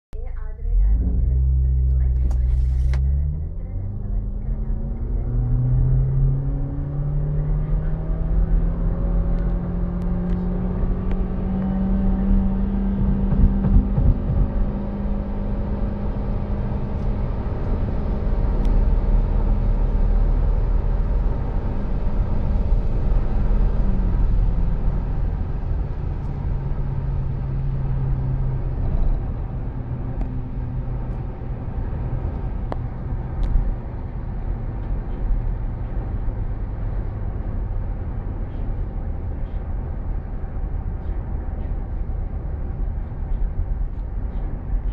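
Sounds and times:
road rumble: 0.2s - 44.9s
car engine accelerating: 0.4s - 44.9s.

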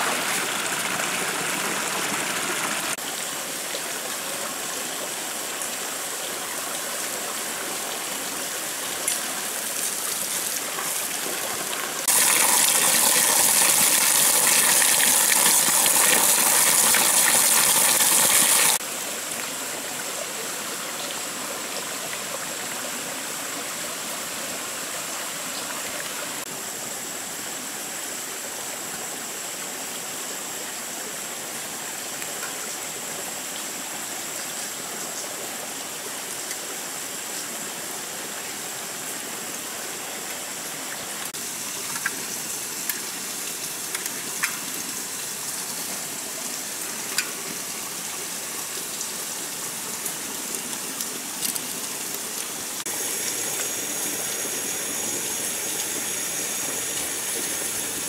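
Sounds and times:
stream running over rocks: 0.0s - 58.0s
water pouring onto rock: 12.0s - 18.8s.

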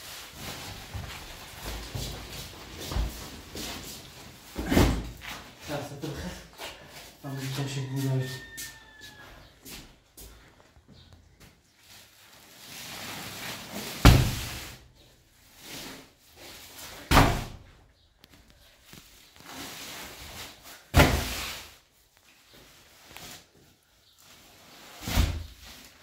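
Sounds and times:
sack rustling and scuffing: 0.0s - 5.7s
sacks thudding on tiled floor: 0.2s - 5.2s, 12.4s - 14.8s, 19.4s - 21.9s, 24.9s - 26.0s.

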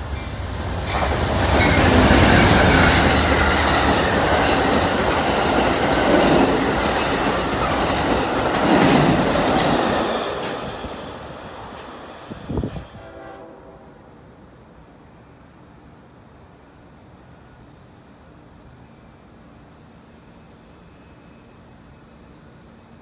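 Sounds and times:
train wheels clattering on rails: 0.0s - 13.0s
diesel locomotive engine rumble: 0.0s - 17.6s.

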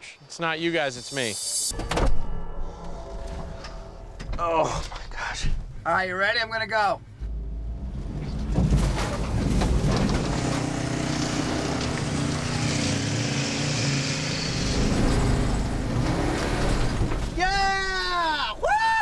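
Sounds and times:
truck engine revving: 7.2s - 17.4s.

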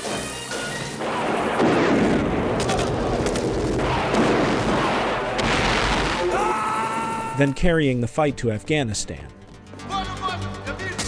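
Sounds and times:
explosions: 0.9s - 6.5s
gunfire cracks: 1.0s - 6.3s.

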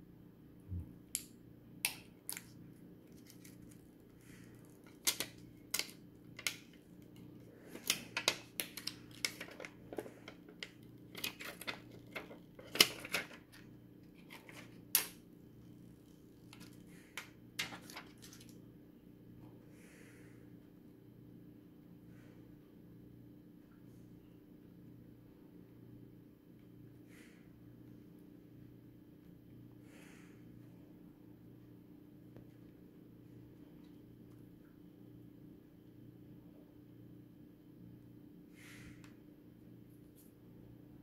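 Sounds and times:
faint steady hum: 0.0s - 41.0s
plastic film clicking and crackling: 1.9s - 18.6s.

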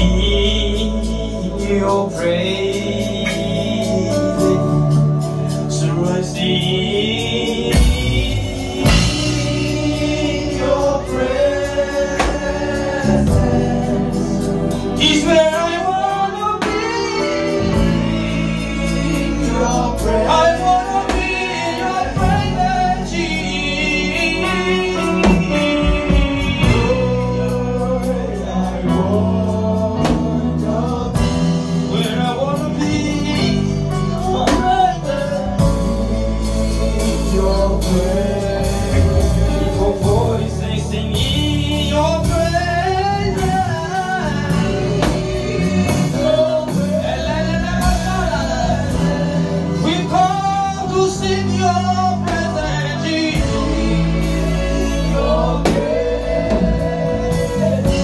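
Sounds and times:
backing singers: 0.0s - 58.0s
held instrumental chords: 0.0s - 58.0s
man singing lead: 0.0s - 58.0s.

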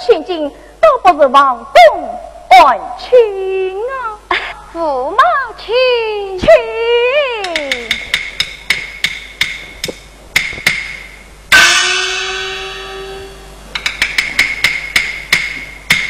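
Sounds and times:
clapper-like percussion strokes: 7.4s - 16.0s
gong ringing: 11.5s - 13.7s.

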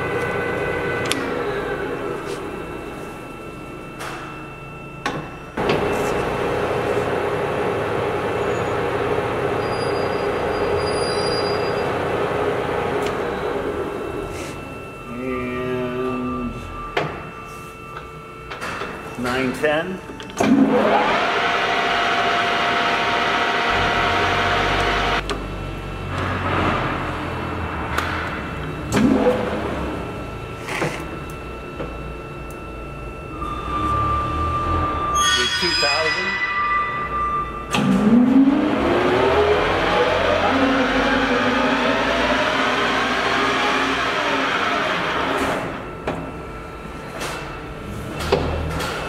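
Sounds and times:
lathe gearing whine: 0.0s - 49.0s.

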